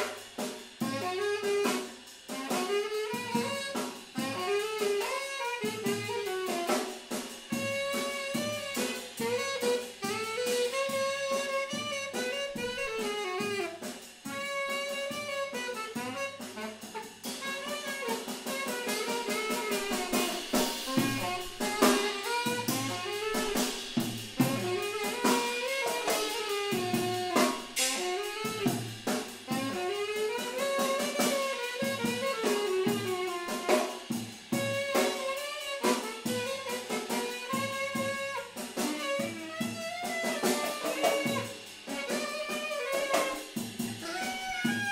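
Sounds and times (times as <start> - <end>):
drum kit hits: 0.0 - 35.3, 36.0 - 44.9
wind instrument melody: 0.0 - 44.9.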